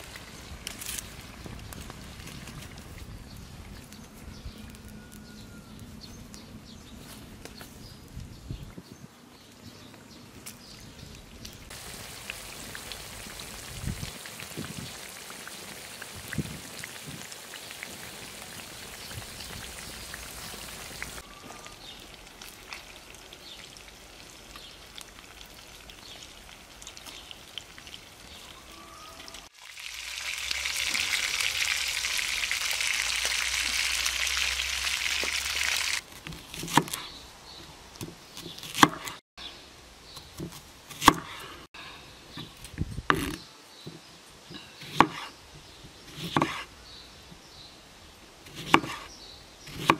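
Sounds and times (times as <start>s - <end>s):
fish sizzling on a griddle: 29.5s - 36.0s.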